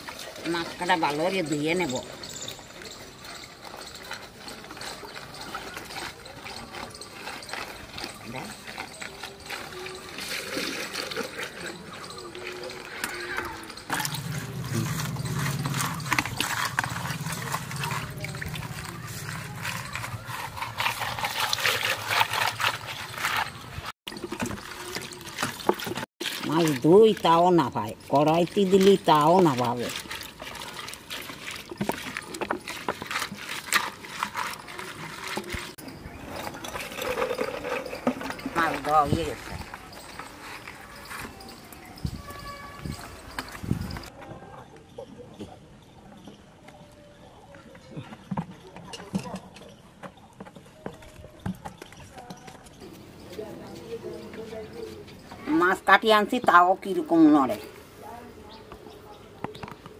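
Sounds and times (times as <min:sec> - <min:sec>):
water splashing and sloshing: 0:00.0 - 0:44.4
hands swishing water in bowl: 0:13.9 - 0:41.8.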